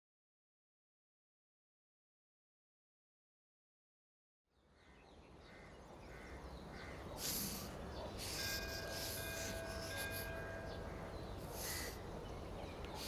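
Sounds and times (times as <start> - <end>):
crows cawing: 4.8 - 7.7, 10.6 - 12.0.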